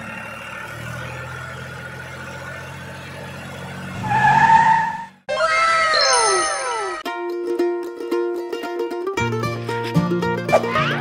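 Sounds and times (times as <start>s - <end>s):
cartoon wow sound effect: 5.3s - 7.0s, 10.5s - 11.0s.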